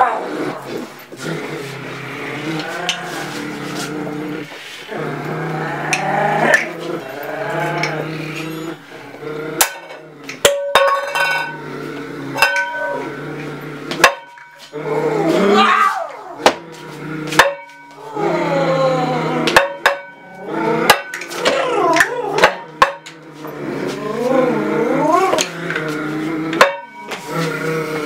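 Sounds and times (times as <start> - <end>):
wordless vocal moans: 0.0 - 10.3, 14.7 - 17.4, 18.0 - 28.0
metallic clanks: 9.6 - 11.6, 12.4 - 13.0.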